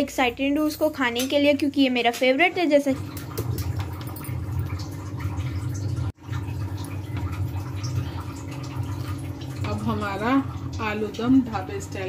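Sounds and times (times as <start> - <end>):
curry bubbling in a pot: 3.0 - 12.0.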